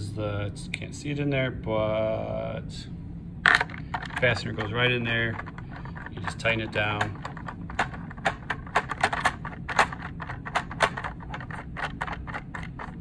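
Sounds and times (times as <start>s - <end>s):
plastic knob clicking: 5.3s - 13.0s.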